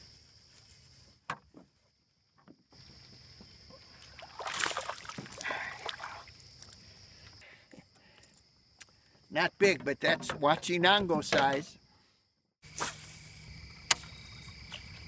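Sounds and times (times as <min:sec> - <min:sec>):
fish splashing in water: 0:04.1 - 0:06.3.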